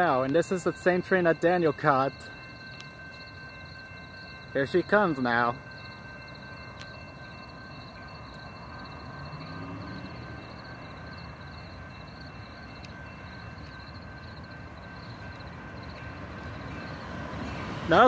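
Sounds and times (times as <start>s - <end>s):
distant train rumble: 0.0s - 18.0s
crickets chirping: 5.7s - 17.9s.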